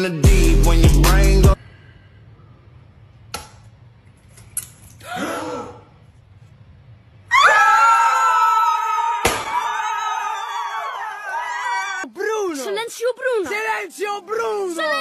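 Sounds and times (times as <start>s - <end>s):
group screaming excitedly: 7.3s - 12.1s.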